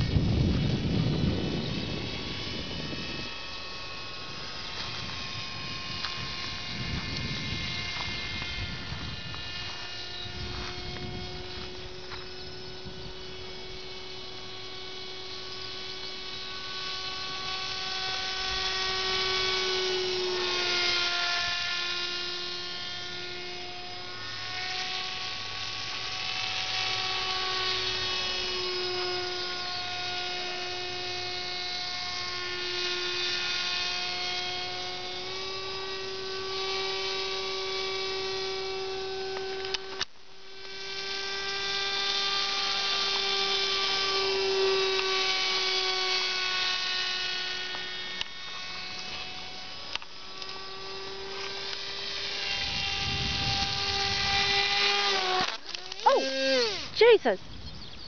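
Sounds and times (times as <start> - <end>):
model plane motor whining: 0.0 - 58.0.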